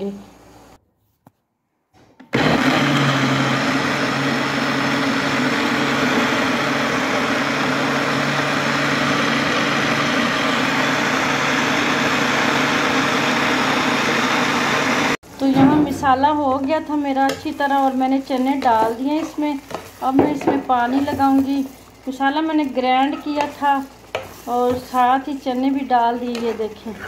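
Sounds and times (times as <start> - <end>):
electric blender whirring: 2.2 - 15.2.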